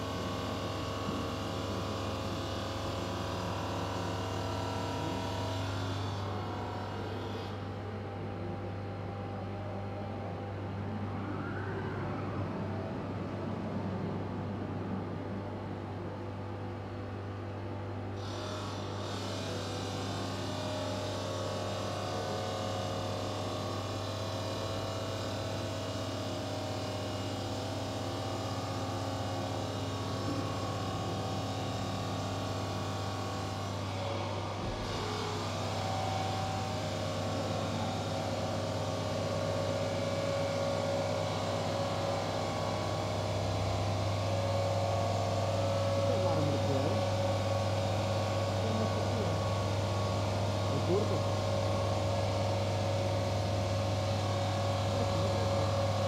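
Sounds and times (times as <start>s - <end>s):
saw motor hum: 18.2s - 56.0s.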